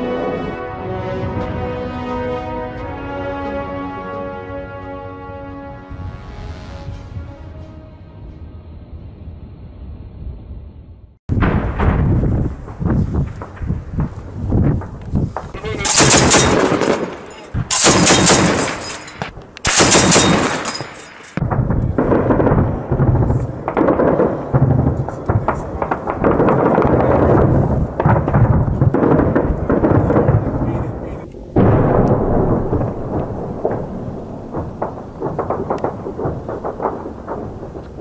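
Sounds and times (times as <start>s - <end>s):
large explosion booming: 11.3s - 18.6s, 21.4s - 38.0s
rumbling gunfire and blasts: 11.3s - 38.0s
machine-gun fire: 15.7s - 30.7s.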